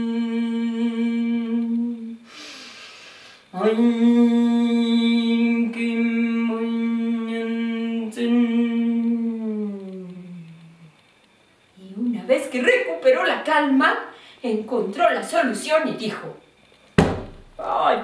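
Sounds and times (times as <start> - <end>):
woman breathing in: 2.2 - 3.5.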